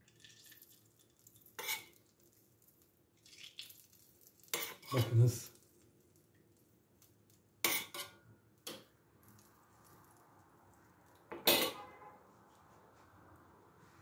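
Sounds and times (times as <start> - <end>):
metal spoon clinking on plate: 11.3 - 11.9
spoon clinking in metal pan: 11.4 - 12.0.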